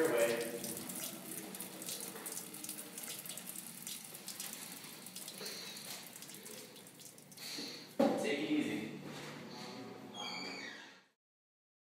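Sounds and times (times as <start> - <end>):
water running: 0.0 - 8.6.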